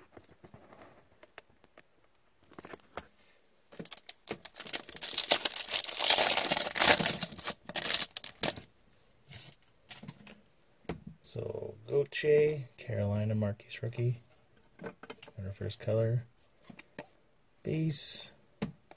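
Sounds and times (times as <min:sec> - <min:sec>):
foil wrapper tearing and crinkling: 0:03.8 - 0:08.6.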